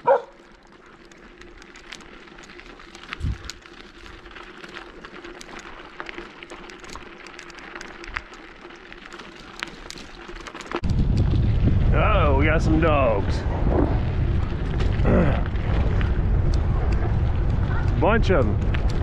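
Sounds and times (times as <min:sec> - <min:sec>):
bicycle tyres crunching on gravel: 0:00.0 - 0:19.0.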